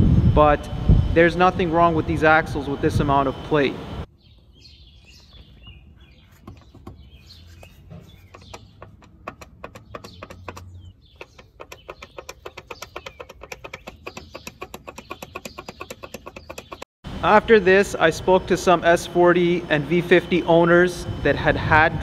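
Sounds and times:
car axle clicking and knocking: 6.4 - 16.9.

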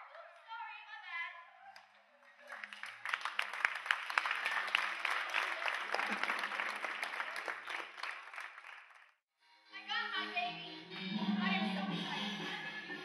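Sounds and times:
audience applauding: 2.2 - 9.2.

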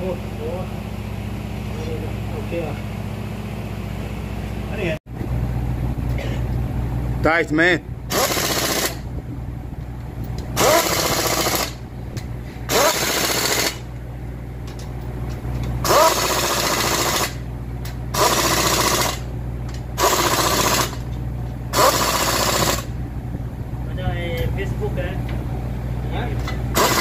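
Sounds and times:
impact wrench hammering: 8.1 - 9.0, 10.6 - 11.8, 12.7 - 13.8, 15.8 - 17.4, 20.0 - 22.9, 26.5 - 27.0.

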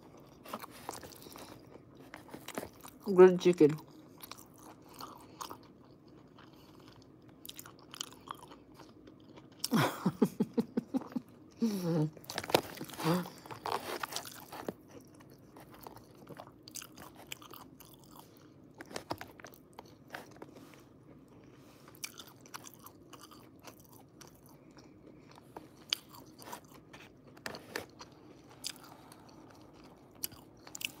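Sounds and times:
person chewing food: 0.0 - 3.1, 3.7 - 31.0.

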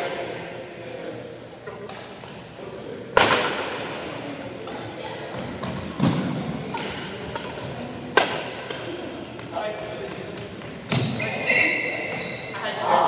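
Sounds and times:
racket smacking shuttlecock: 5.6 - 9.5.

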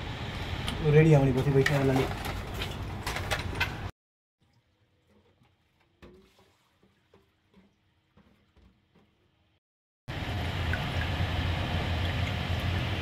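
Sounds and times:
fluid dripping: 4.4 - 9.3, 10.4 - 13.0.

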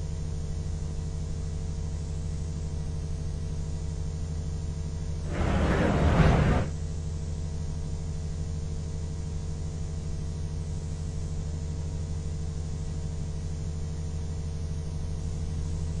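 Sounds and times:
low electrical hum: 0.9 - 7.0.

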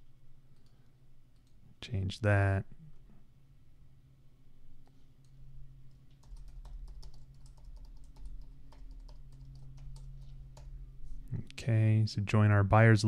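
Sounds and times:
faint steady low hum: 0.0 - 13.0
computer keyboard typing: 5.9 - 10.8.

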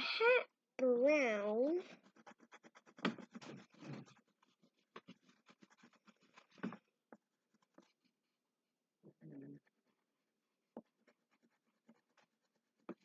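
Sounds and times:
crayon scribbling on paper: 1.8 - 6.9, 7.5 - 8.0, 10.7 - 13.0.

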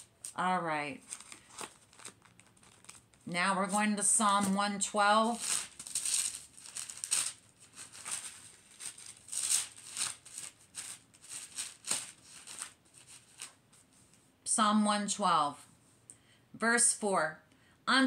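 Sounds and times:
thin pages rustling: 1.0 - 4.6, 5.2 - 14.3.

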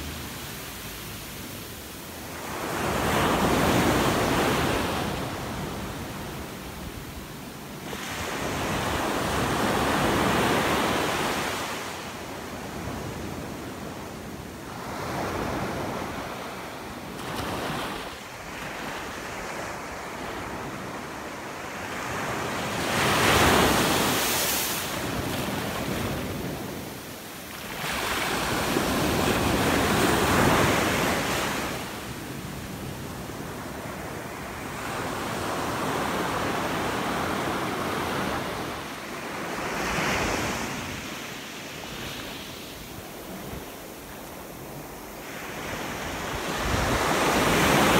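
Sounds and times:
small waves breaking on beach: 14.6 - 47.9.

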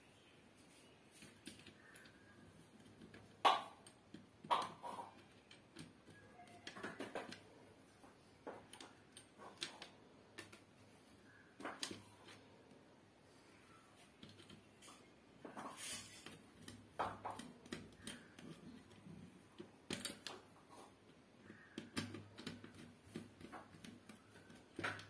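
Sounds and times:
screwdriver clicks and taps: 8.4 - 10.7, 16.2 - 20.5, 21.1 - 25.0.

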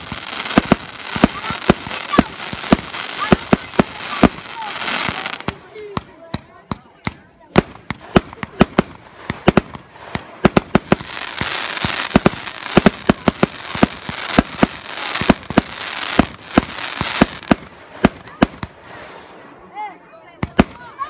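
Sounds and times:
crackling hiss of bursting stars: 0.0 - 5.5
fireworks launching reports: 0.0 - 21.0.

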